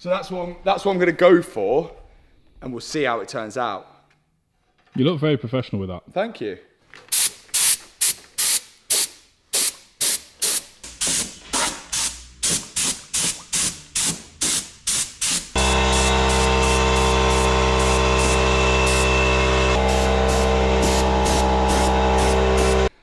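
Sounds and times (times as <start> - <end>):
spray gun hissing bursts: 7.1 - 19.1, 19.8 - 22.9
air compressor humming: 7.1 - 22.9.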